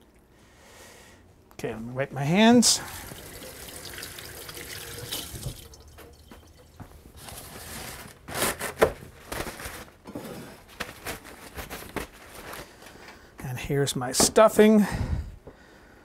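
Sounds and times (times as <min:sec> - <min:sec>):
rustling rubs: 0:07.1 - 0:10.0.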